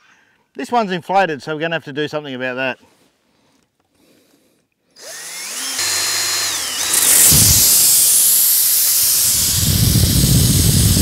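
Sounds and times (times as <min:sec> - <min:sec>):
cordless drill motor whining: 0:05.0 - 0:11.0
air hissing from tyre: 0:07.3 - 0:11.0.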